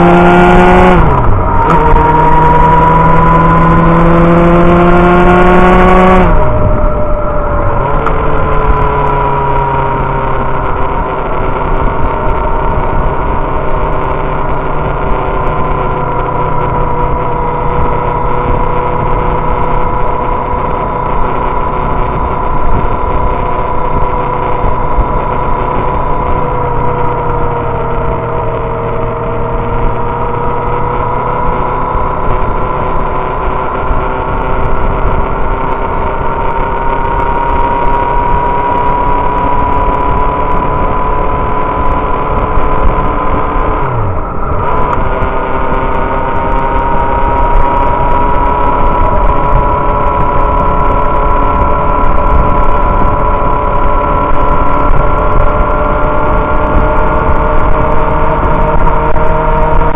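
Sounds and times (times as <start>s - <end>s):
motorcycle engine cruising: 0.0s - 59.9s.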